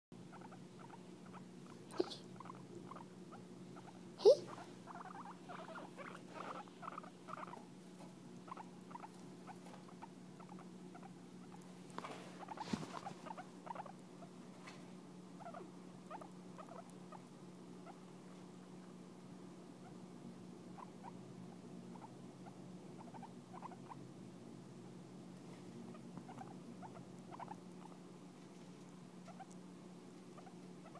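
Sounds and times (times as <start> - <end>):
low steady hum: 0.2 - 30.9.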